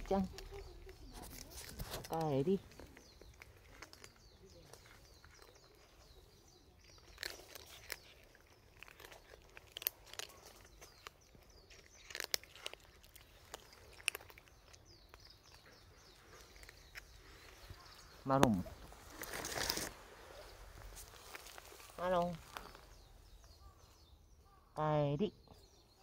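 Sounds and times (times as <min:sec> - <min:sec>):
cats crunching dry kibble: 0:00.0 - 0:23.8.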